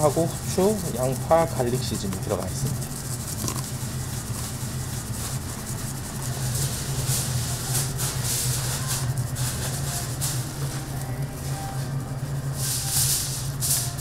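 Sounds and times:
seasoning shaker rattling: 0:00.0 - 0:11.2
low hum: 0:00.0 - 0:13.4.

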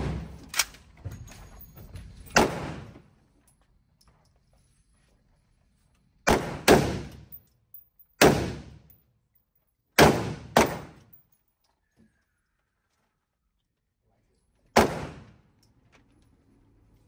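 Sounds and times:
rifle shots echoing indoors: 0:06.3 - 0:07.3, 0:08.2 - 0:08.9.

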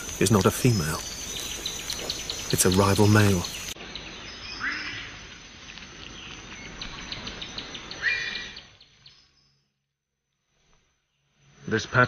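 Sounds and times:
upward sweeping calls: 0:00.0 - 0:03.8
insect hiss: 0:00.0 - 0:12.0.

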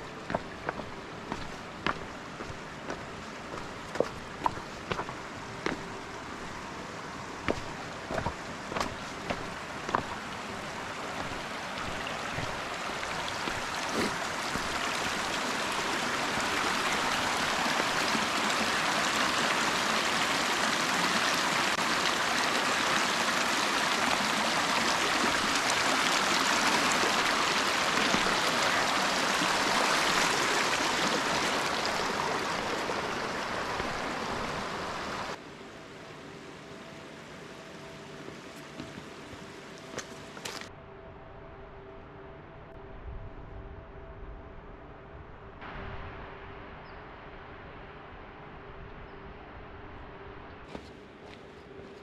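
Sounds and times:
stream running over stones: 0:00.0 - 0:35.4, 0:37.9 - 0:40.7.

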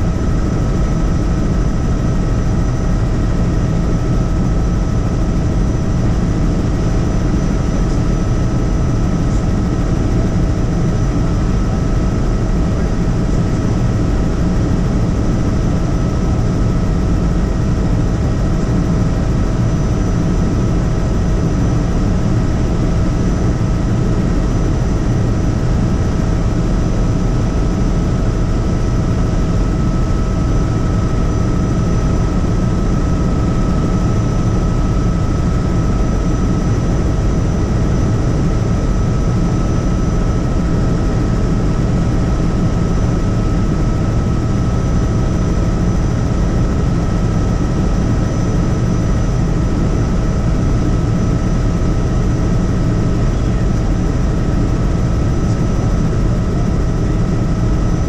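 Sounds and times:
helicopter rotor and engine drone: 0:00.0 - 0:58.0.

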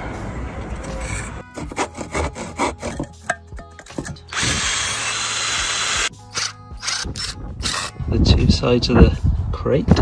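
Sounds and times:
handsaw cutting wood: 0:01.5 - 0:03.0
power drill boring into wood: 0:04.3 - 0:07.9.

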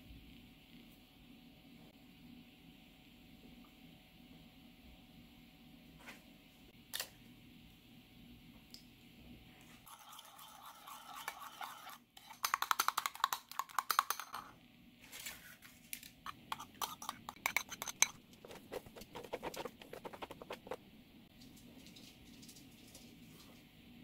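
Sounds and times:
spoon scraping ceramic bowl: 0:09.8 - 0:14.5, 0:16.3 - 0:20.8
spoon clinking against bowl: 0:16.5 - 0:18.2.

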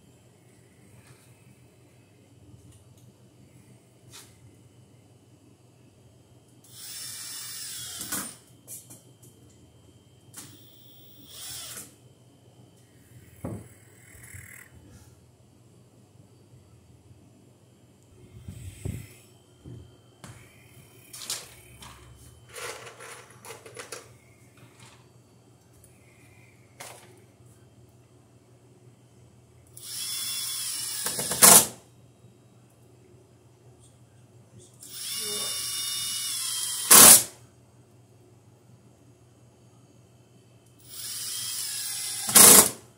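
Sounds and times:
cordless drill driving screws: 0:10.5 - 0:11.9, 0:29.8 - 0:31.6, 0:34.9 - 0:37.2, 0:40.9 - 0:42.8.

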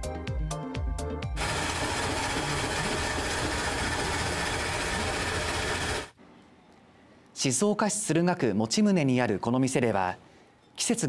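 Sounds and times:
ice shaver grinding: 0:01.4 - 0:06.1.

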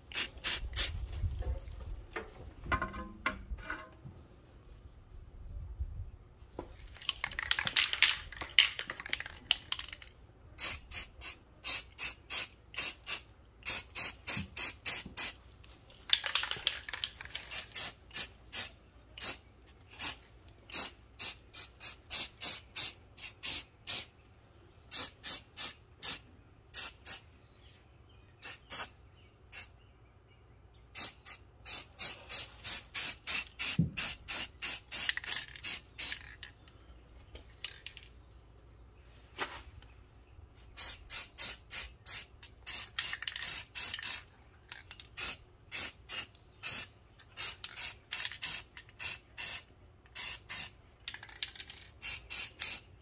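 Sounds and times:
aerosol paint spraying: 0:00.1 - 0:01.0, 0:08.7 - 0:15.4, 0:16.1 - 0:24.1, 0:24.9 - 0:26.2, 0:26.8 - 0:27.2, 0:28.4 - 0:28.9, 0:31.0 - 0:36.3, 0:40.6 - 0:44.2, 0:45.1 - 0:52.9.

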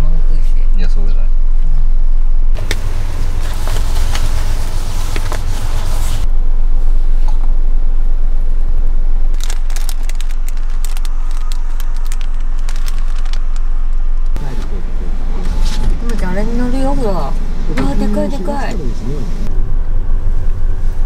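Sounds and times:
van engine idling rumble: 0:00.0 - 0:21.0
plastic wrapper crinkling: 0:09.3 - 0:14.0.

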